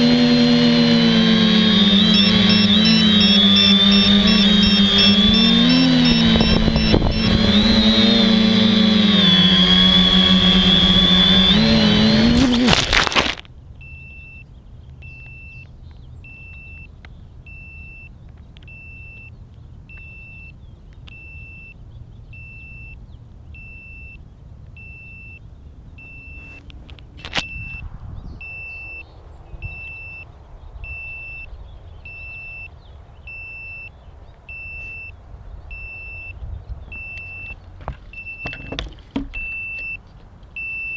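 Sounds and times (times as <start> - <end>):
drone motors whining: 0.0 - 13.4, 36.9 - 40.9
short high beep: 2.1 - 7.4, 28.4 - 29.0, 35.7 - 37.6, 39.4 - 40.0, 40.6 - 40.9.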